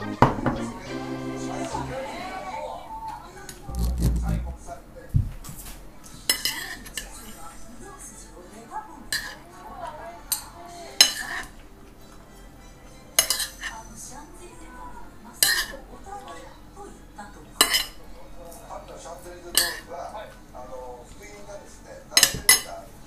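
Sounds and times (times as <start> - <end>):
utensil scraping plate: 3.7 - 4.6
metal utensil clinking on plates: 6.3 - 7.4, 10.3 - 13.8, 15.4 - 15.8, 17.6 - 18.0, 19.5 - 19.9, 22.2 - 22.8.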